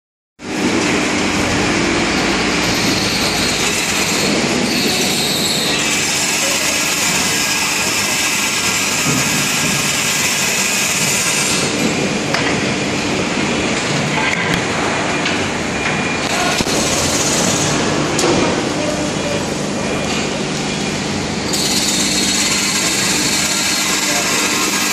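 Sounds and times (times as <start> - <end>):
industrial machinery hiss and hum: 0.4 - 24.9.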